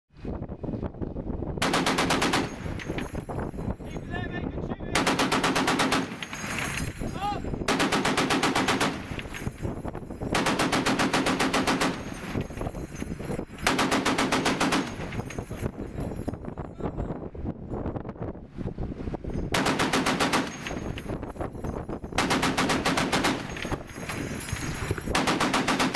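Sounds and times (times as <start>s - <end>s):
machine gun bursts: 1.6s - 3.0s, 5.0s - 6.8s, 7.7s - 9.4s, 10.3s - 12.4s, 13.6s - 15.4s, 19.6s - 21.0s, 22.2s - 24.5s, 25.1s - 25.9s.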